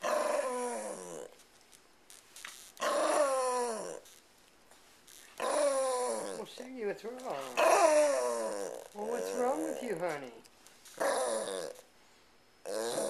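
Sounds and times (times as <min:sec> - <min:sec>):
small dog growling: 0:00.0 - 0:01.4, 0:02.8 - 0:04.2, 0:05.4 - 0:10.2, 0:11.0 - 0:11.9, 0:12.6 - 0:13.0.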